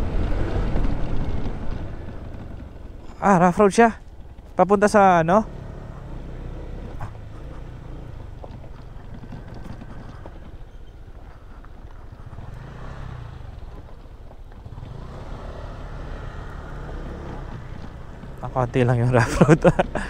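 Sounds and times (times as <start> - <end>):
scooter engine running: 0.0 - 20.0
knocks and rattles from bumps: 6.8 - 12.5.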